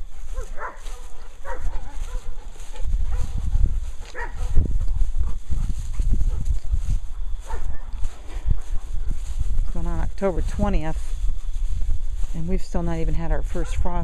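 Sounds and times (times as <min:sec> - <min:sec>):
footsteps: 0:00.0 - 0:14.0
dogs yipping: 0:00.2 - 0:03.4, 0:04.0 - 0:06.6, 0:07.4 - 0:09.3.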